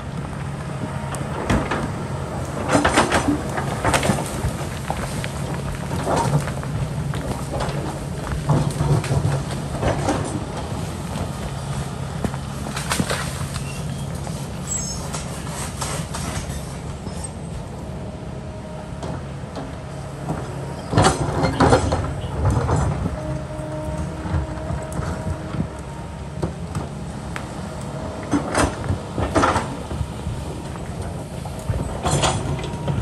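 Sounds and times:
excavator diesel engine running: 0.0 - 33.0.

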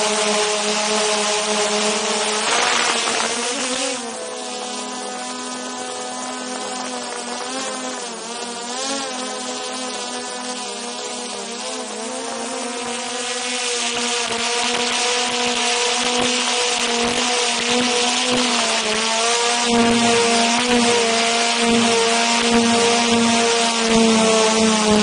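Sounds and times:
quadcopter motors whining: 0.0 - 25.0
airflow hiss: 1.9 - 5.0.

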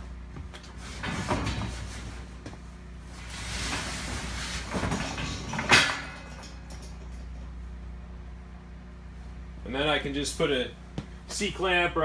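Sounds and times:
cart wheels rolling on steel rails: 3.2 - 7.5.

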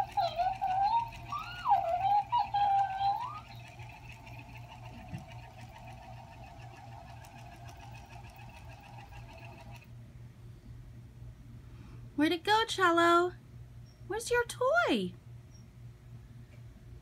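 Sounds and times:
toy high sped-up voice: 0.0 - 4.5
toy motor whirring hum: 0.0 - 9.9.

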